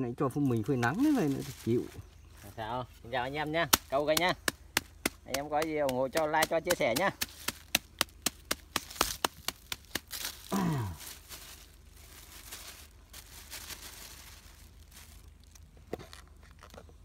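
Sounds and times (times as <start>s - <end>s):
soft rustling: 0.6s - 3.2s, 8.9s - 17.0s
garlic being pounded: 3.7s - 10.4s
person's short falling vocal sound: 10.4s - 11.0s.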